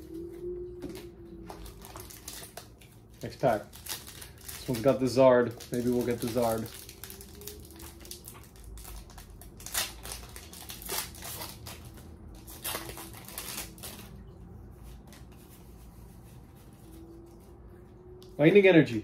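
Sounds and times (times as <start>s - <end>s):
foil wrapper crinkling: 1.5s - 14.2s.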